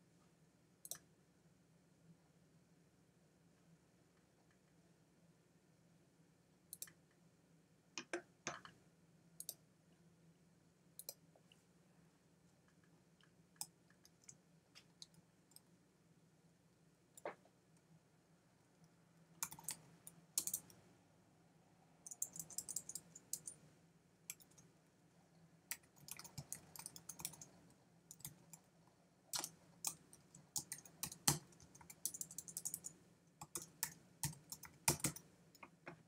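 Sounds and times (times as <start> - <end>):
keyboard typing clicks: 19.4 - 19.8, 20.4 - 20.8, 22.1 - 23.6, 25.7 - 28.6, 29.3 - 35.8.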